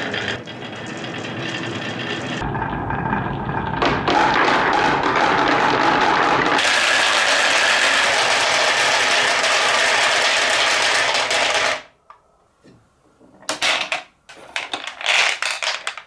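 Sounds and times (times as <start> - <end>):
marbles rattling down wooden tracks: 3.8 - 11.9, 13.5 - 16.0.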